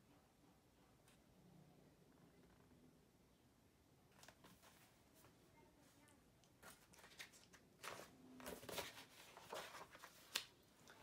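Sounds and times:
book pages turning: 6.6 - 11.0.

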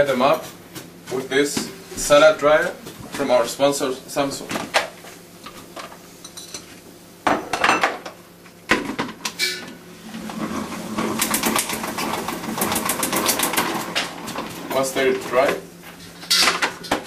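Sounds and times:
salad spinner whirring: 10.0 - 14.8.

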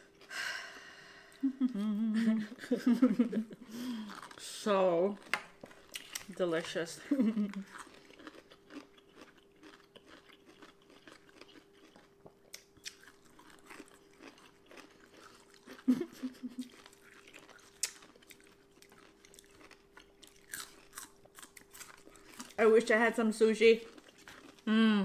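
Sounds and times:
person humming mm: 1.2 - 2.4, 24.7 - 25.0
crunchy chewing: 4.0 - 4.4, 7.4 - 22.6, 23.8 - 24.7.

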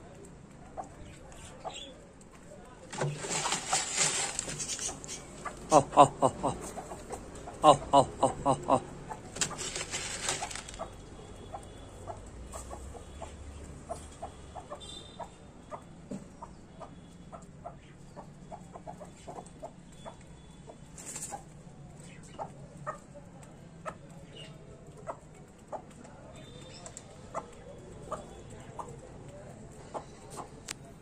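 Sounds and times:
hens clucking: 2.9 - 20.2, 23.8 - 31.0.

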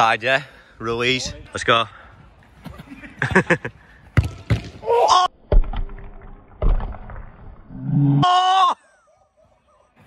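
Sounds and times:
football being kicked: 4.1 - 4.8.

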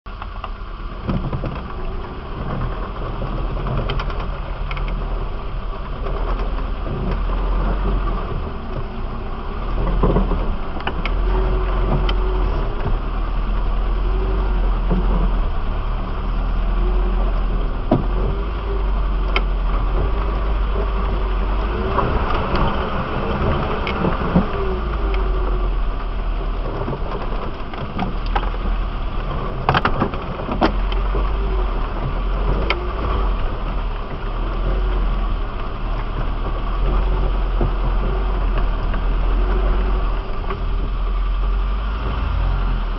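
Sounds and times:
off-road vehicle engine running: 0.1 - 42.9
vehicle knocks and rattles: 0.1 - 42.9.

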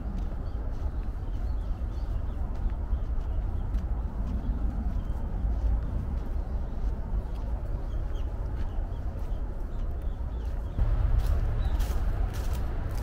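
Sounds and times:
low rumble: 10.7 - 13.0.

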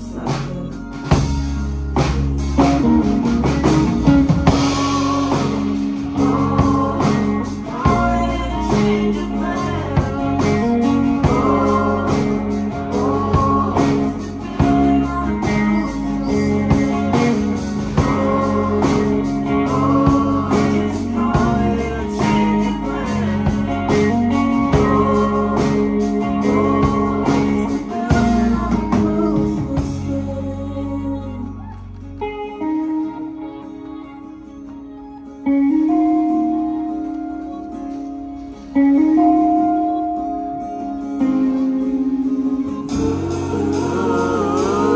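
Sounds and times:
bass guitar: 0.0 - 44.9
drums: 0.0 - 44.9
electric and acoustic guitars: 0.0 - 44.9
person singing: 4.2 - 34.2, 38.9 - 44.9.

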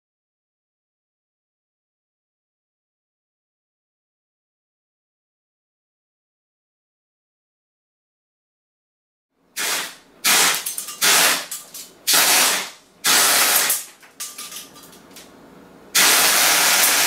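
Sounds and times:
airgun full-auto bursts: 9.6 - 13.9, 15.9 - 17.0.

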